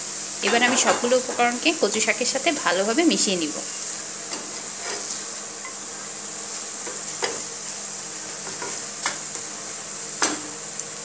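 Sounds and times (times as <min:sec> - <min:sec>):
curry sizzling in a frying pan: 0:00.0 - 0:11.0
utensil scraping and knocking pan: 0:00.4 - 0:01.4.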